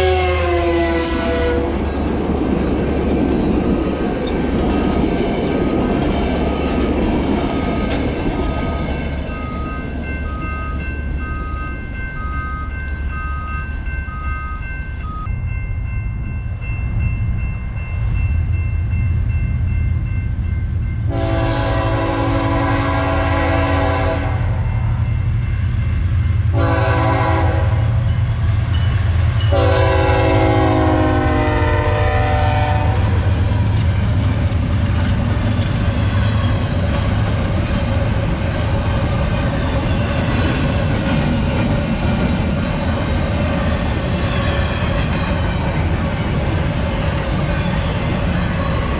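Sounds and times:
locomotive air horn blasts: 0:00.0 - 0:01.9, 0:21.1 - 0:24.6, 0:26.5 - 0:28.0, 0:29.5 - 0:33.2
freight train rumbling: 0:00.0 - 0:48.9
crossing bell ringing: 0:03.1 - 0:48.9.

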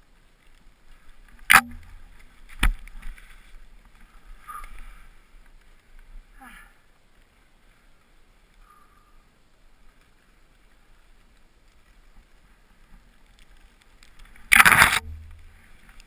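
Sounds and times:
skiing through powder snow: 0:00.0 - 0:16.0
branches brushing camera: 0:12.9 - 0:16.0.

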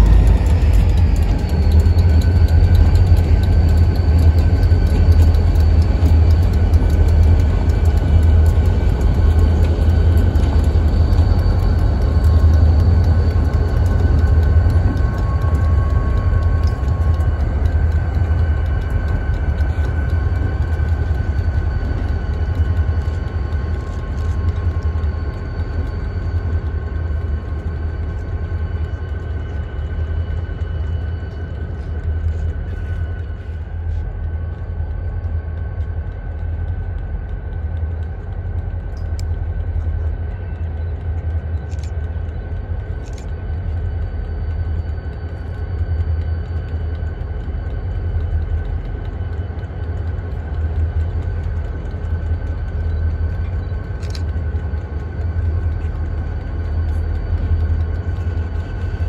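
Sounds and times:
diesel locomotive engine rumble: 0:00.0 - 0:59.0.

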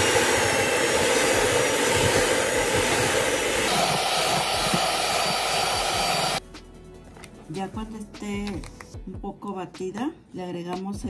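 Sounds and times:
electric hand mixer running: 0:00.0 - 0:06.4.

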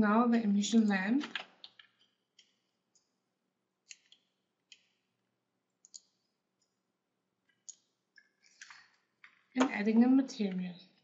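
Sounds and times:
mouse and keyboard clicks: 0:03.8 - 0:05.0, 0:05.8 - 0:06.7.

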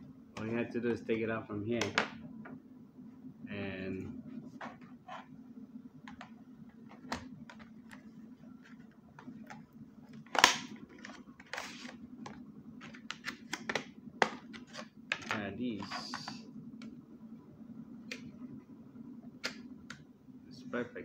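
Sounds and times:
low steady hum: 0:00.0 - 0:21.0
clicks and taps of handling packaging: 0:01.8 - 0:02.2, 0:06.1 - 0:15.4.

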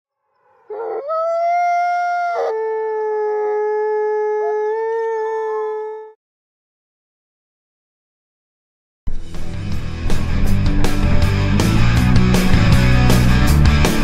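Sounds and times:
dog howling: 0:00.4 - 0:06.2.

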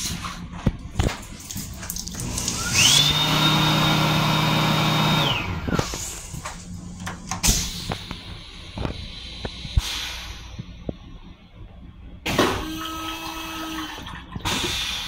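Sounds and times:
hand dryer whine: 0:02.1 - 0:06.6, 0:12.3 - 0:14.8.

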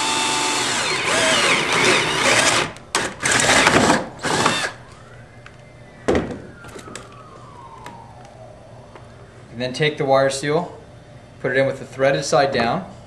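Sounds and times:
cordless drill boring plastic: 0:00.0 - 0:04.7.

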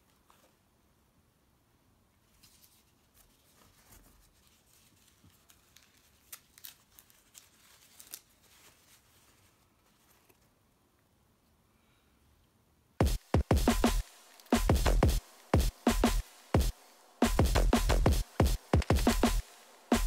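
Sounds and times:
paper wrapping crinkling: 0:02.3 - 0:10.6.

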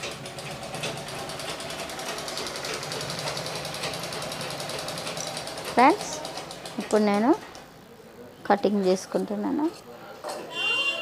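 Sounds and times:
sewing machine rattling: 0:00.0 - 0:07.4.

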